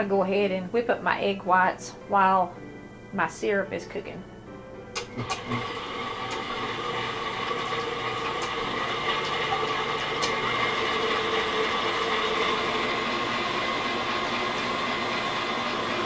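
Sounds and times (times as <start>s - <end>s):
stand mixer motor whining: 5.0s - 16.0s
whisk beating egg whites: 5.2s - 16.0s.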